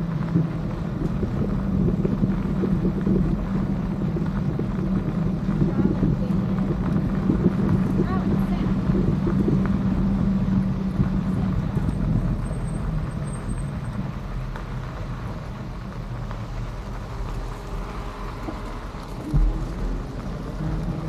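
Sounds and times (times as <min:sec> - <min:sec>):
electric bike motor and tyres rumbling: 0:00.0 - 0:21.0
sharp thump: 0:19.2 - 0:20.0.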